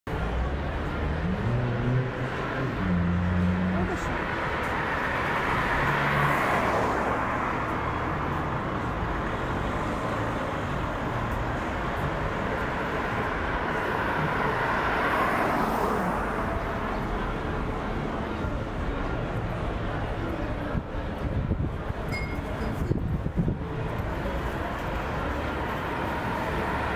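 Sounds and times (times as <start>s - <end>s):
cars passing close by: 0.1s - 26.9s
hum of street traffic: 0.1s - 26.9s.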